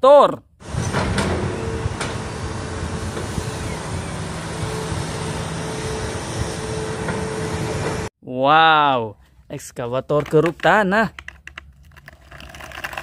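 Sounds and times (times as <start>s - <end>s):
excavator diesel engine running: 0.6s - 8.1s.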